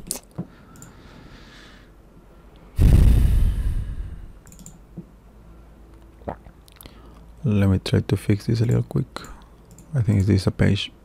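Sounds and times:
computer mouse clicks: 0:00.8 - 0:01.0, 0:04.4 - 0:04.8, 0:08.6 - 0:10.4.

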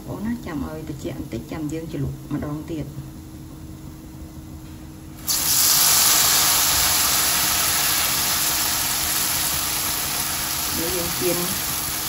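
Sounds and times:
batter frying in hot oil: 0:05.2 - 0:12.0.

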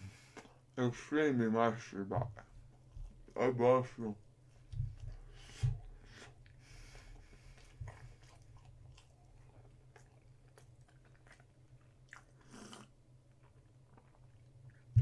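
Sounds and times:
man chewing: 0:04.7 - 0:15.0.

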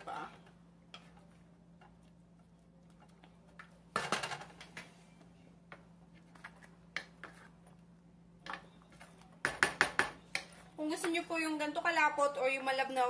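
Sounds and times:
wooden spoon stirring sauce in pan: 0:00.1 - 0:03.9, 0:05.7 - 0:07.9.

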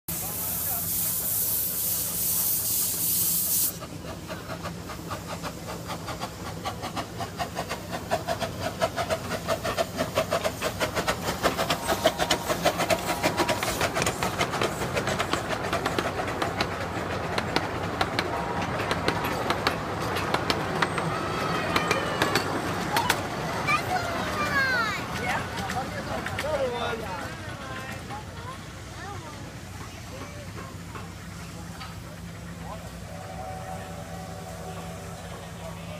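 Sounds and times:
steam hiss: 0:00.1 - 0:17.3, 0:31.2 - 0:35.9
steam exhaust chuffs: 0:00.1 - 0:20.8, 0:30.7 - 0:35.9
wheels clicking on rails: 0:00.3 - 0:35.9.

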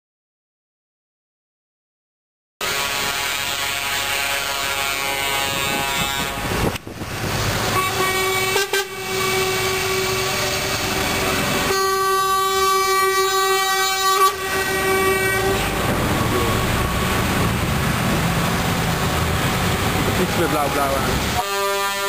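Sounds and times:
truck air horn blast: 0:02.6 - 0:06.8, 0:07.6 - 0:16.9, 0:20.4 - 0:22.0
trucks driving past: 0:02.6 - 0:22.0.

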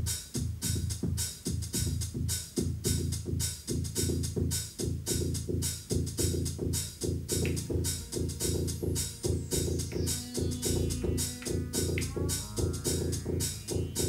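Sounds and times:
drum machine kick and hi-hat: 0:00.0 - 0:14.0
synth bass line: 0:07.3 - 0:14.0.

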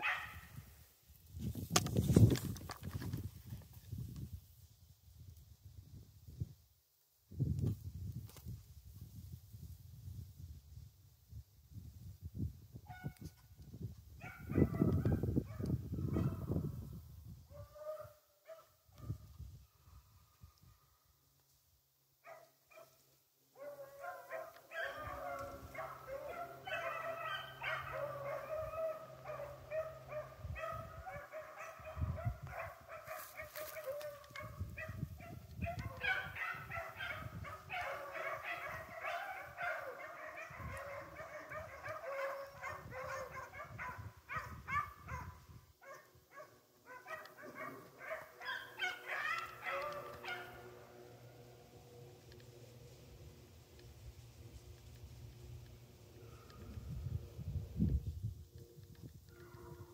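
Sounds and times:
dogs baying and barking: 0:00.0 - 0:00.4, 0:23.6 - 0:57.3.

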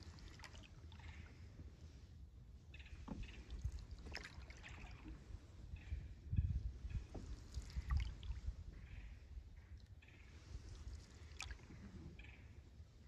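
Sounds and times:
paddle swishes and drips: 0:00.0 - 0:02.2, 0:02.9 - 0:05.7, 0:06.7 - 0:08.9, 0:09.7 - 0:12.2.

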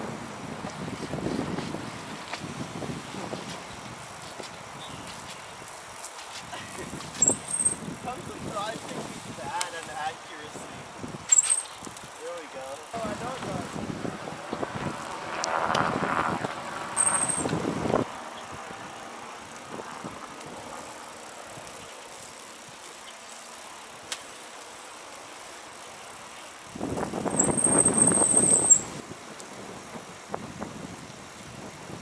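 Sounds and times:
rushing noise of riding: 0:00.0 - 0:32.0
bicycle brake squeal: 0:07.1 - 0:07.9, 0:11.3 - 0:11.8, 0:17.0 - 0:17.6, 0:27.2 - 0:29.0.

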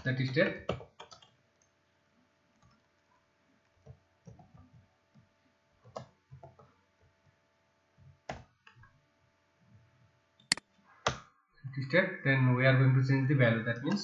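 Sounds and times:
computer keyboard typing: 0:00.0 - 0:01.7, 0:03.8 - 0:07.4.

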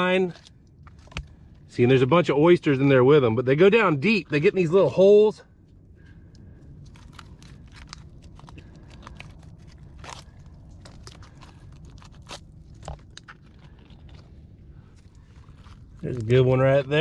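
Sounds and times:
shells crunching and scraping: 0:00.2 - 0:01.6, 0:05.7 - 0:17.0.

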